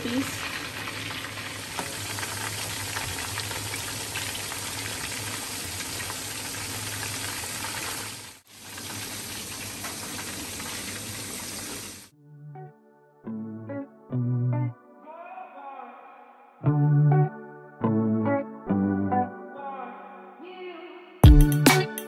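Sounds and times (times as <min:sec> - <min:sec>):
fish deep-frying in hot oil: 0:00.0 - 0:12.1.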